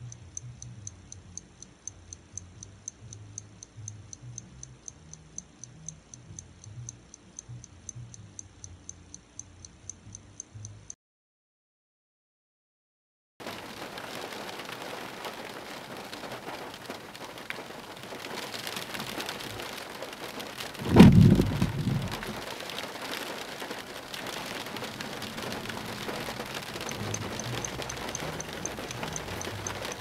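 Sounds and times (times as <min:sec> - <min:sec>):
fast high clock ticking: 0:00.0 - 0:11.0, 0:20.8 - 0:22.4, 0:24.6 - 0:30.0
steady rain: 0:13.4 - 0:30.0
thunder clap rumbling: 0:20.8 - 0:22.4.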